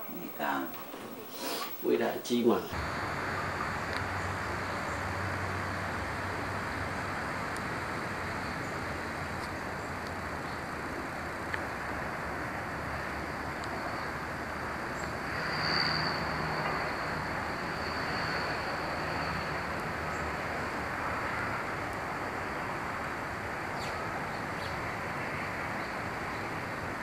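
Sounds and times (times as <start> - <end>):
rushing hiss: 0.0 - 3.0
faint low hum: 0.0 - 5.8.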